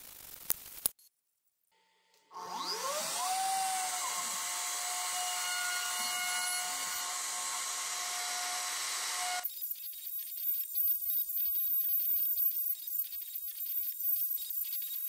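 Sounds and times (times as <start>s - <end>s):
router high whine: 2.2s - 9.4s.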